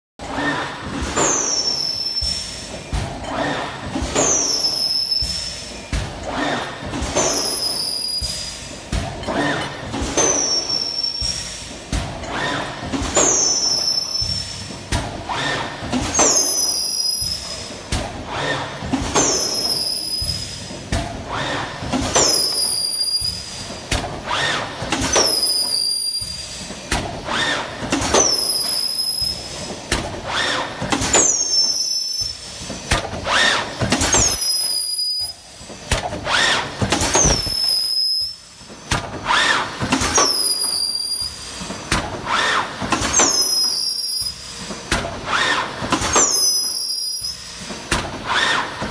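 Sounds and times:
machine press clatter: 0.2 - 34.8, 35.7 - 40.8, 44.6 - 46.8.

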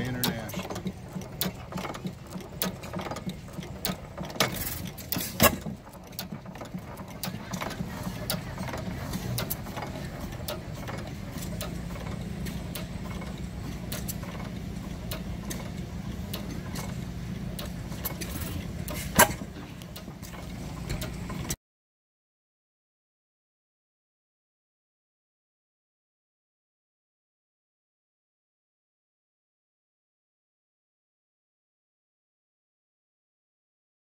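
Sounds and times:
sharp clicks and knocks: 0.0 - 21.6
stationary gas engines running: 0.0 - 21.6.

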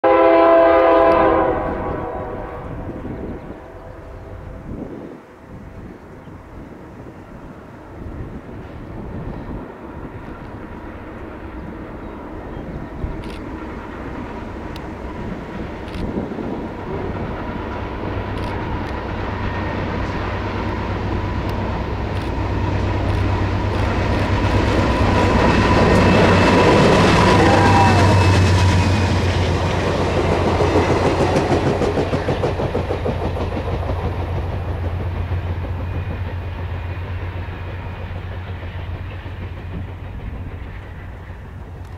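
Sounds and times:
train rumbling past: 0.0 - 41.9
man yelling woooo: 27.3 - 28.2.

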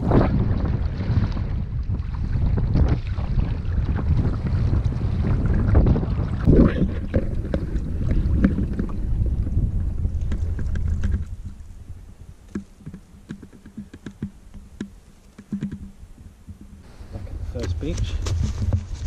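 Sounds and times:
water splashing: 0.0 - 11.8
wind buffeting microphone: 0.0 - 15.0, 15.6 - 19.0
paddle drips and knocks: 0.3 - 9.3, 12.5 - 17.4.

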